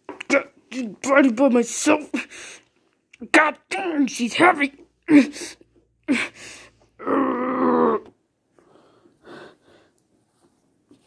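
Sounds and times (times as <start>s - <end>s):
person grunting and groaning: 7.0s - 8.2s.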